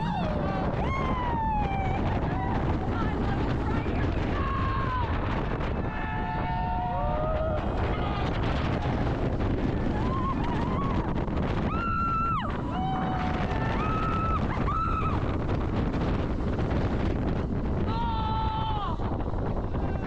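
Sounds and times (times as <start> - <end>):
wind buffeting microphone: 0.0 - 20.0
riders screaming: 9.8 - 15.4, 17.9 - 20.0.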